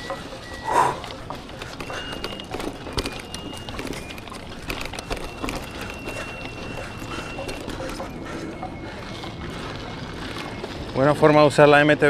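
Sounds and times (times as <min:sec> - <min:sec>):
thin high tone: 0:00.0 - 0:01.1
bike parts rattling and knocking: 0:00.0 - 0:10.9.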